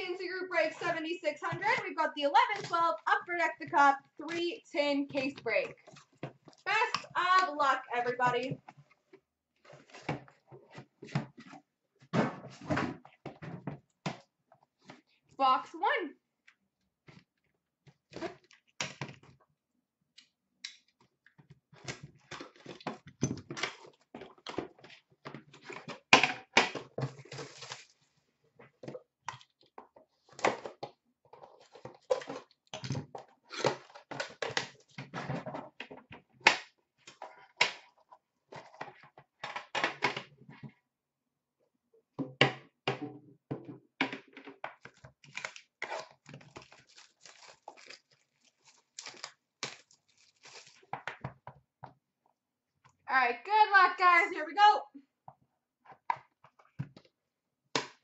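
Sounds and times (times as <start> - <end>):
shrink wrap crinkling: 45.2 - 50.9.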